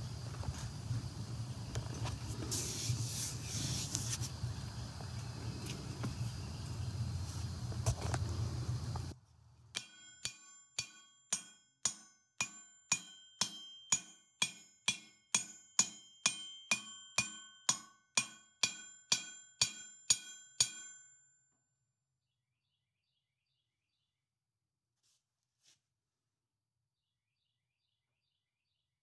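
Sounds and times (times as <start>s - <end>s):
low rumbling noise: 4.2s - 9.6s
hammer ringing on anvil: 9.8s - 21.4s.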